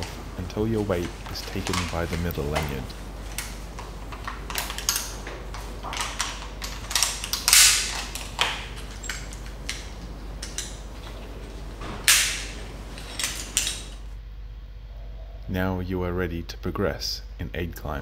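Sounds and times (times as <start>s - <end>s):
metal climbing hardware clicking: 0.8s - 14.1s.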